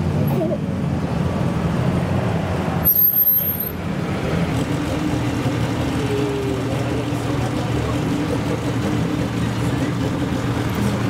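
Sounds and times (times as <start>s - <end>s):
vintage car engine running: 3.6s - 11.0s.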